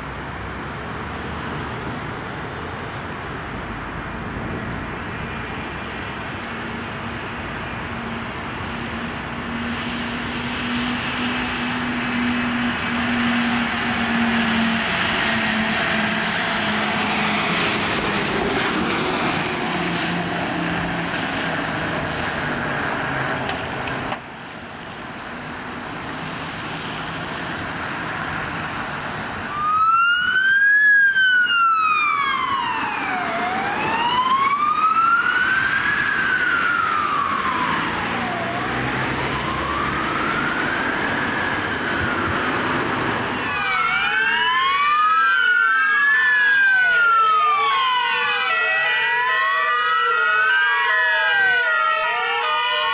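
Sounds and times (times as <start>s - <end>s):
ambulance siren wailing: 10.6s - 20.9s, 29.5s - 52.9s.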